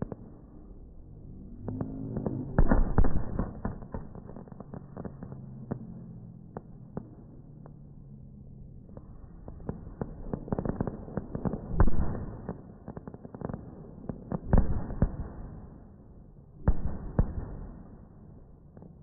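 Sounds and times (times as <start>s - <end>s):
fireworks crackling and popping: 0.0s - 19.0s
fireworks loud bangs: 1.6s - 7.2s, 8.9s - 15.7s, 16.6s - 18.2s.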